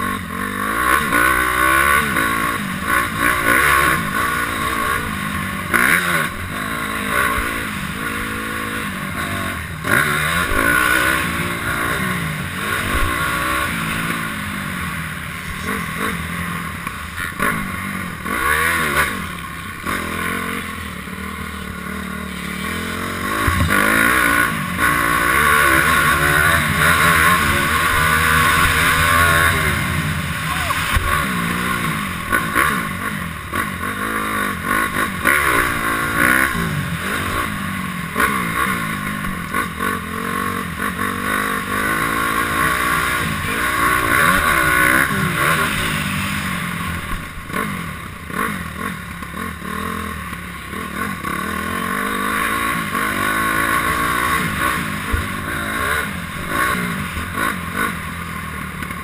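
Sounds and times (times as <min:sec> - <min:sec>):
motorcycle engine revving hard: 0:00.0 - 0:59.0.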